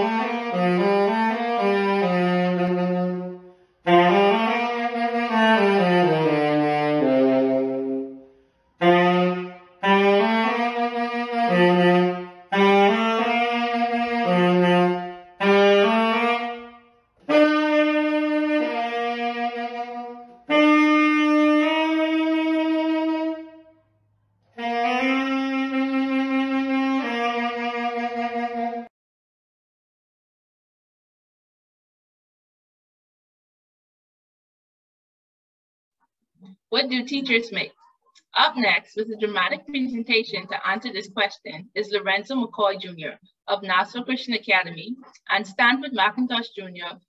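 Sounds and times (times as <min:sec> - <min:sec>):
tenor saxophone slow melody: 0:00.0 - 0:28.9.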